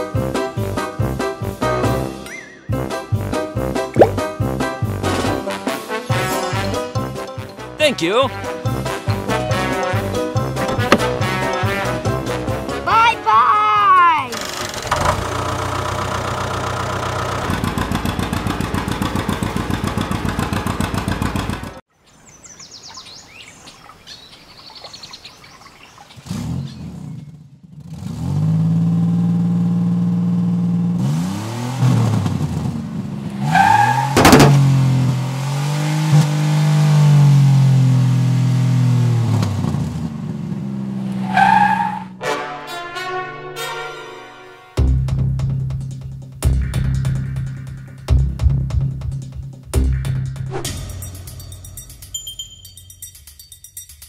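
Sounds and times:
truck engine revving: 0:14.8 - 0:21.8, 0:26.2 - 0:42.2.

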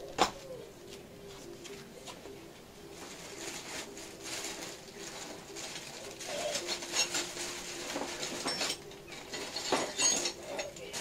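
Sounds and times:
metal hand tools clinking: 0:08.2 - 0:11.0.

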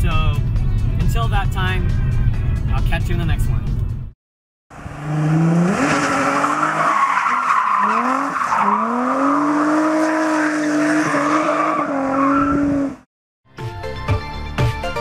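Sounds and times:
car engine revving: 0:04.7 - 0:13.0.

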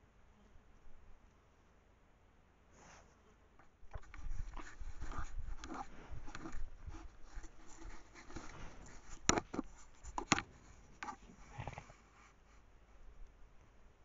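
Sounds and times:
fur rubbing against camera housing: 0:03.9 - 0:12.6
sharp clicks on plastic case: 0:09.2 - 0:10.5.

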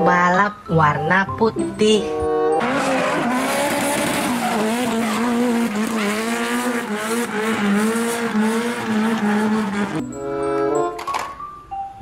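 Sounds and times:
car engine revving high: 0:02.6 - 0:10.1
tires squealing: 0:02.6 - 0:10.1.

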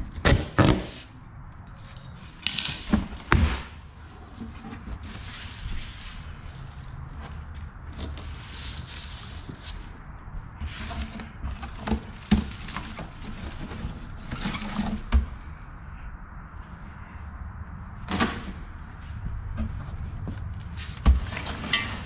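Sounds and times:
paper packing rustling and crackling: 0:10.6 - 0:15.6.

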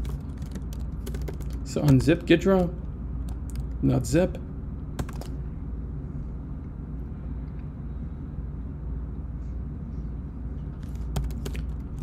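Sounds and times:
low background hum: 0:00.0 - 0:12.0
computer keyboard key clicks: 0:05.0 - 0:05.3.

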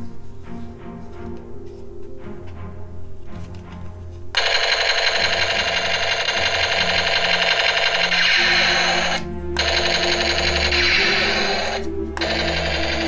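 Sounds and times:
toy machine gun rattling: 0:04.4 - 0:13.0.

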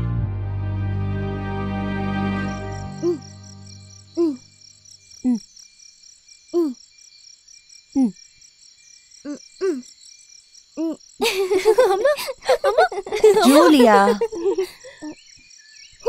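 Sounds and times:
crickets chirping: 0:02.3 - 0:16.0
voices: 0:11.6 - 0:15.1.

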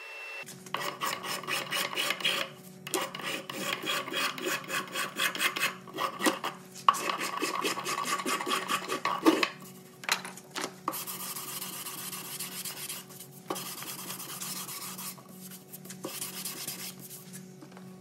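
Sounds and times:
hand tool scraping wood: 0:00.8 - 0:09.4.

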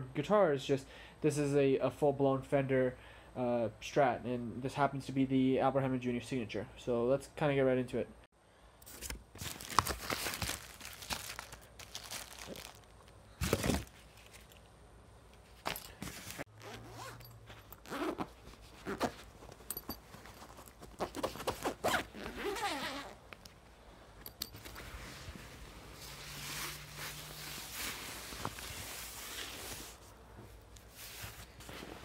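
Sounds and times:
fabric and plastic rustling: 0:08.9 - 0:14.7, 0:15.4 - 0:23.6, 0:24.5 - 0:32.0
zipper rasping open: 0:16.2 - 0:23.2.

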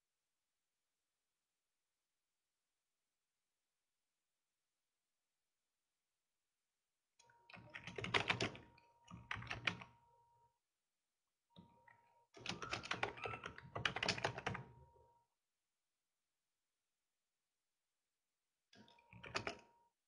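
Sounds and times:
typing on computer keyboard: 0:07.5 - 0:10.0, 0:12.4 - 0:14.8, 0:18.9 - 0:19.7.

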